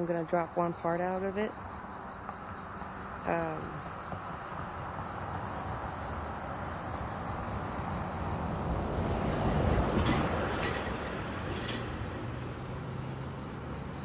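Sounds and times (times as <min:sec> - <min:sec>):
crickets chirping: 0:00.0 - 0:14.0
vehicle road noise: 0:00.0 - 0:14.0.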